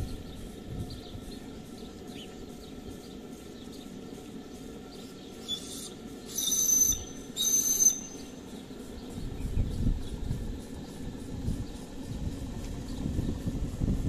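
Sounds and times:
steam hiss: 0:03.0 - 0:09.4
steam whistle shrill high note: 0:05.5 - 0:08.3.

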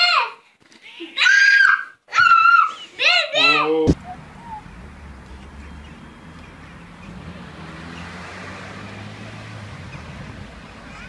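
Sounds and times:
faint street noise: 0:02.1 - 0:11.0
car engine humming: 0:03.7 - 0:11.0.

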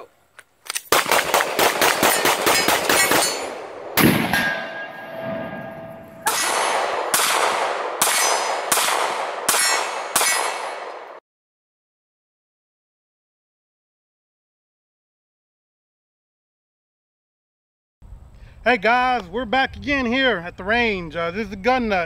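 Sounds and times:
pistol shots: 0:00.9 - 0:11.2
rifle shot: 0:00.9 - 0:11.2
metallic ringing: 0:02.1 - 0:03.6, 0:04.3 - 0:06.4.

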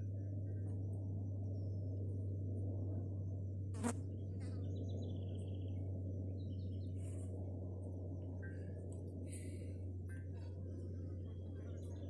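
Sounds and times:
low hum and noise: 0:00.0 - 0:12.0
faint bird chirps: 0:03.8 - 0:07.4.

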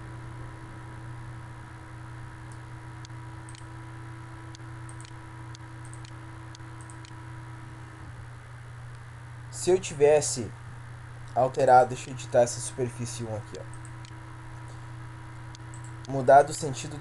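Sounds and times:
low electrical hum: 0:00.0 - 0:17.0
computer mouse clicking: 0:02.5 - 0:03.7, 0:04.5 - 0:07.2, 0:15.5 - 0:16.2.

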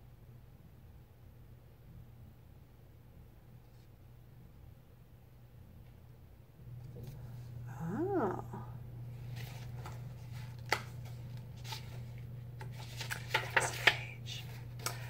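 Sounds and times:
steady low hum: 0:00.0 - 0:15.0
book pages turning: 0:09.2 - 0:15.0
paper crinkles and clicks: 0:09.3 - 0:15.0.

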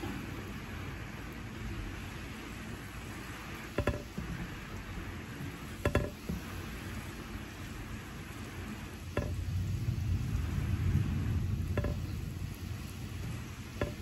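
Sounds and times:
sharp water drips: 0:00.0 - 0:14.0
steady rain: 0:00.0 - 0:14.0
low roll of thunder: 0:09.1 - 0:14.0.

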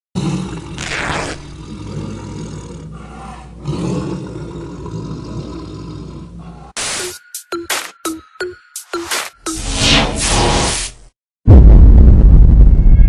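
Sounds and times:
tiger roaring and growling: 0:00.2 - 0:06.8.

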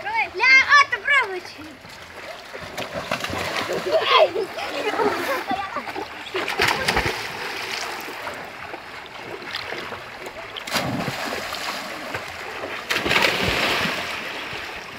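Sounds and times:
swimming splashes: 0:00.0 - 0:14.9
person splashing into river: 0:02.5 - 0:05.5, 0:06.3 - 0:08.4, 0:09.3 - 0:14.7.

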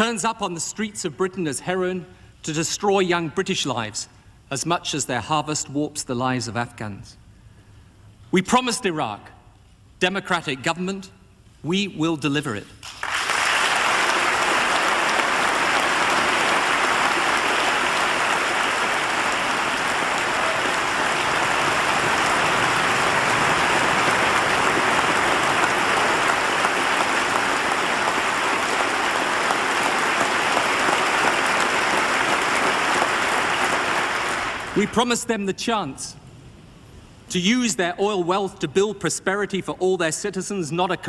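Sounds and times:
large audience applauding: 0:12.8 - 0:35.0.

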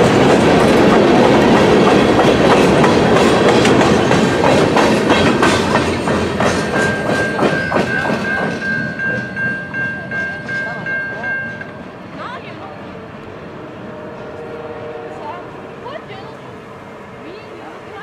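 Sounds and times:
train wheels clacking over rail joints: 0:00.0 - 0:12.0
crossing warning bell ringing: 0:00.0 - 0:12.8.

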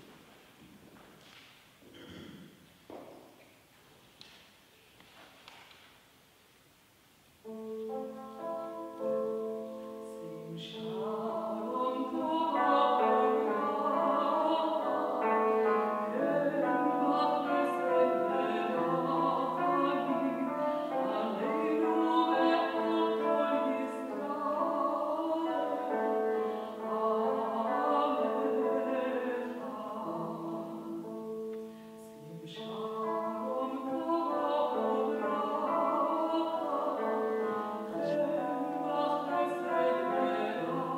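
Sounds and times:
woman singing operatically: 0:07.6 - 0:31.2, 0:32.0 - 0:40.9.

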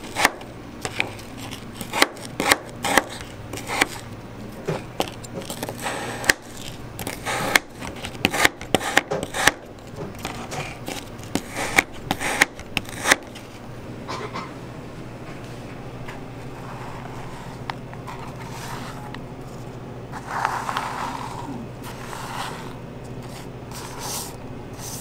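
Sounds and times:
knife chopping on plastic board: 0:00.0 - 0:04.0, 0:04.7 - 0:13.4.

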